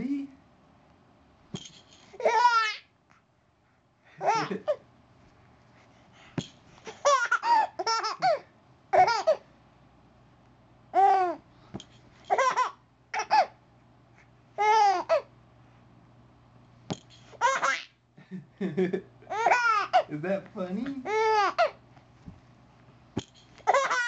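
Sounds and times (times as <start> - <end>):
baby laughing: 2.2 - 2.9, 4.2 - 4.8, 6.9 - 9.4, 11.0 - 11.4, 12.3 - 13.6, 14.6 - 15.3, 17.4 - 17.9, 19.2 - 20.1, 21.0 - 21.8, 23.6 - 24.0.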